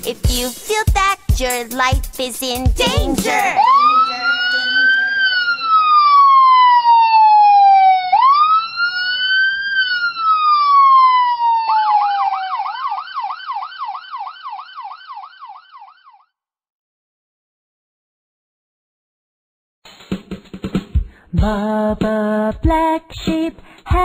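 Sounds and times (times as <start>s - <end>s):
police siren wailing: 3.1s - 16.2s.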